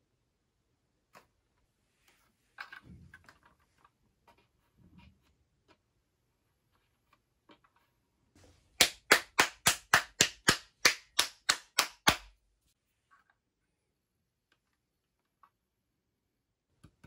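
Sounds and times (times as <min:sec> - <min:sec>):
sharp hand claps: 0:08.8 - 0:12.4.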